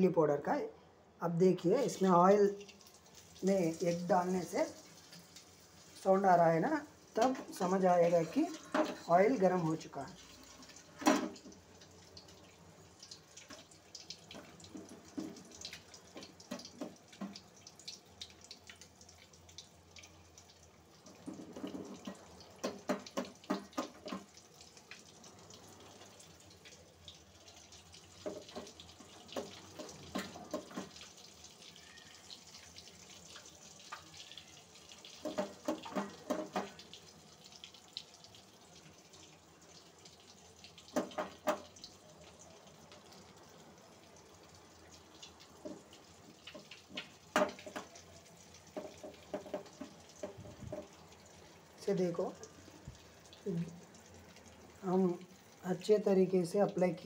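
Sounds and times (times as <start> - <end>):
eggs sizzling in hot oil: 1.4 - 57.0
oil crackling and spattering: 10.0 - 42.0, 42.7 - 55.6.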